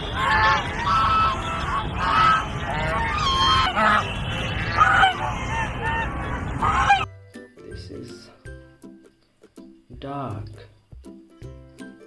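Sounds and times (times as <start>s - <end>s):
geese honking: 0.0s - 7.1s.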